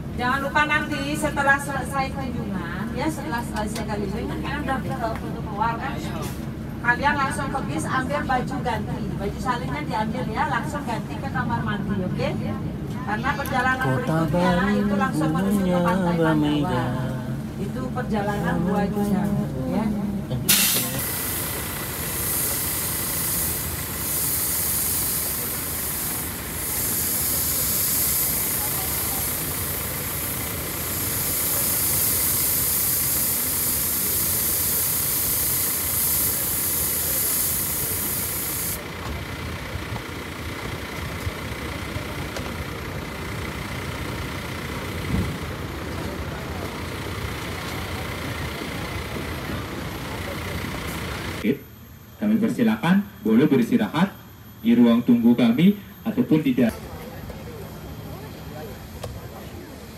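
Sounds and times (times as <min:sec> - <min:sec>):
bus engine idling: 0:00.0 - 0:59.9
even hiss: 0:20.5 - 0:38.8.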